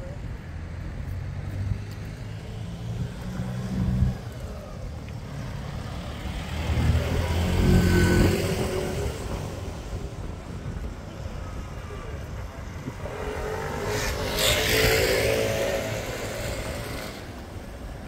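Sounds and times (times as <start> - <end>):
motor vehicle passing: 0.6 - 10.0, 12.8 - 18.0.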